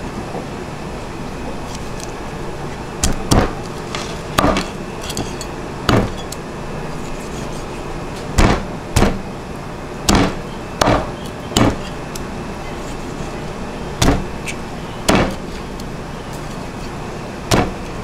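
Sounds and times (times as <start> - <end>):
cleaver chopping on wooden block: 3.0 - 3.6, 4.4 - 4.7, 5.9 - 6.2, 8.4 - 9.2, 10.1 - 11.9, 14.0 - 14.3, 15.1 - 15.4, 17.5 - 17.8.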